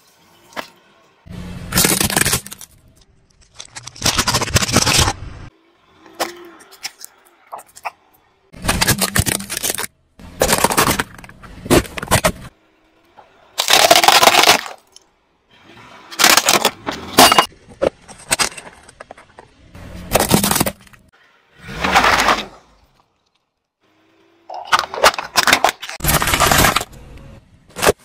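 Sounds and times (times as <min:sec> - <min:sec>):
plastic cracking and crunching: 0:01.7 - 0:05.2, 0:08.6 - 0:12.5, 0:13.6 - 0:15.0, 0:16.2 - 0:16.8.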